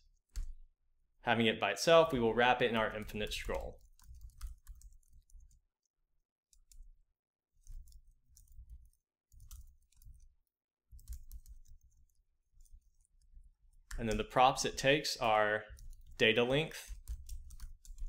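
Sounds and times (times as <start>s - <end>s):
keyboard typing: 2.6s - 5.6s, 7.6s - 18.0s.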